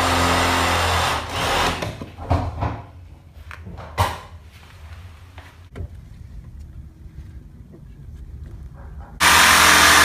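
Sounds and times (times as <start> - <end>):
power tool humming: 9.2 - 10.0.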